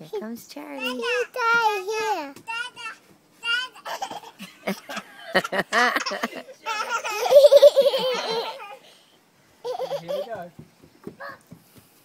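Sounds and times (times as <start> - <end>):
baby girl laughing: 3.7 - 8.8, 9.6 - 10.4.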